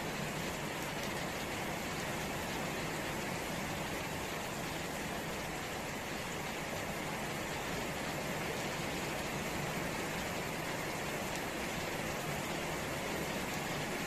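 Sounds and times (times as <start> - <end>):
steady rain falling: 0.0 - 14.0.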